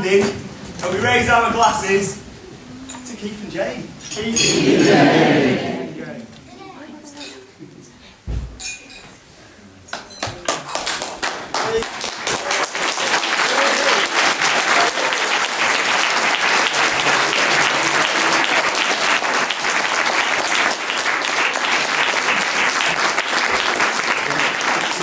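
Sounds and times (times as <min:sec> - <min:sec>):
people clapping: 0:09.9 - 0:25.0.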